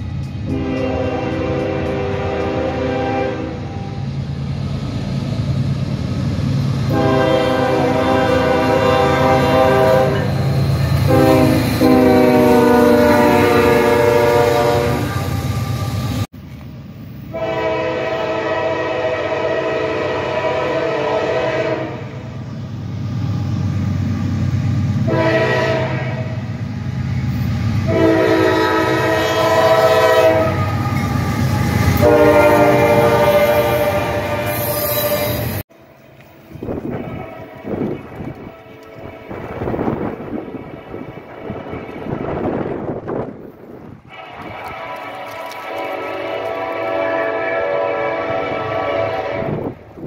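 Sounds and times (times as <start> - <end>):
locomotive engines rumbling: 0.0 - 50.0
rail cars rolling: 0.0 - 50.0
locomotive air horn blasts: 0.4 - 4.0, 6.9 - 15.8, 17.3 - 22.2, 25.0 - 26.5, 27.8 - 35.6, 36.6 - 42.4, 44.1 - 49.8.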